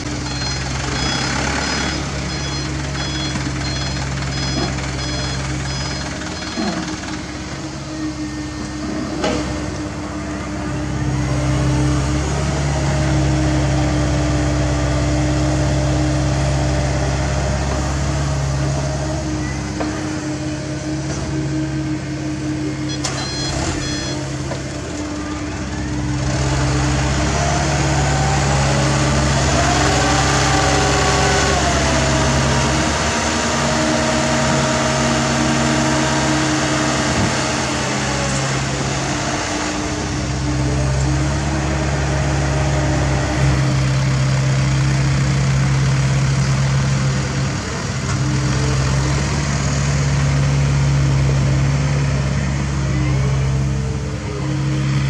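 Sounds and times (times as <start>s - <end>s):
diesel engines running: 0.0s - 55.0s
short high beeps: 0.2s - 7.0s, 22.9s - 24.2s.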